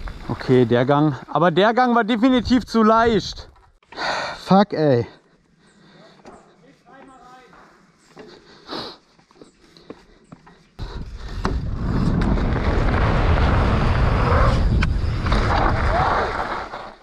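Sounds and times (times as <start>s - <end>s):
bike tyres rolling rumble: 0.0s - 1.4s, 10.8s - 17.0s
wind rush: 10.8s - 16.4s.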